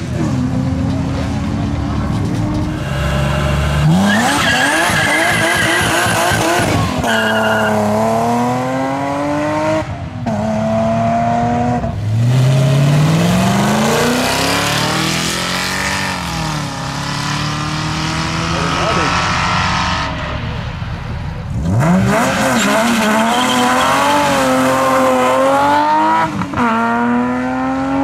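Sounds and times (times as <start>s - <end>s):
tyre squeal: 2.7s - 7.9s, 22.2s - 25.3s.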